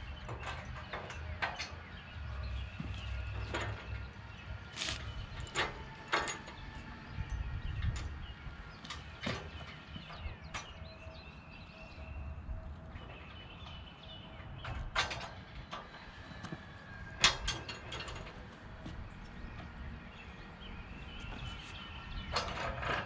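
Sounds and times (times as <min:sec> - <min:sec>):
metal knocks and clanks: 0:08.8 - 0:11.0.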